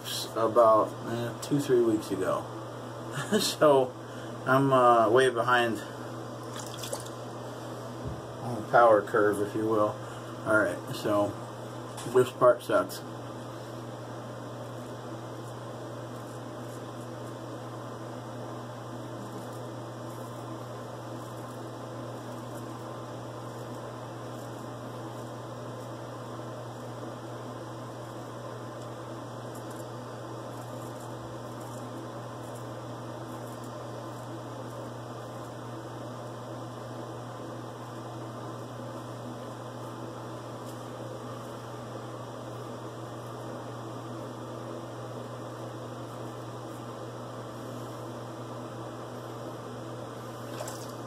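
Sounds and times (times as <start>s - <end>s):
low hum with hiss: 0.0s - 51.0s
razor scraping stubble: 19.2s - 20.5s, 21.1s - 22.8s, 29.4s - 35.6s.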